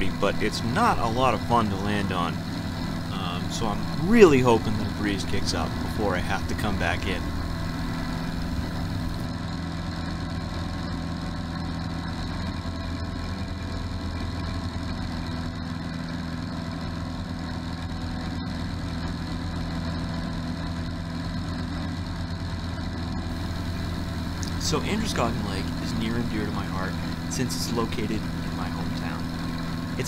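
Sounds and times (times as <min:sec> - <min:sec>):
airplane engine droning: 0:00.0 - 0:09.3, 0:23.3 - 0:30.0.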